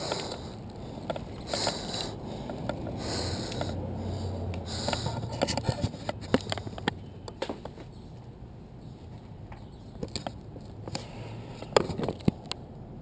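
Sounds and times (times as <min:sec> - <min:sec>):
low steady background noise: 0:00.0 - 0:13.0.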